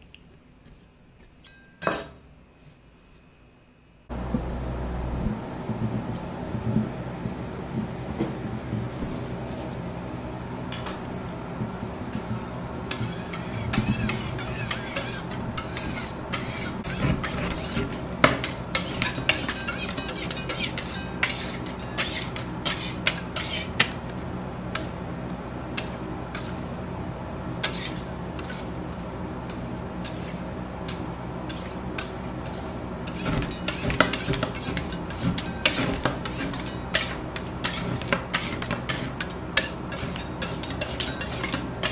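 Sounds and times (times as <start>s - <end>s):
steady low hum: 4.0s - 41.9s
metal spatulas clicking and scraping: 12.9s - 23.9s, 30.9s - 41.9s.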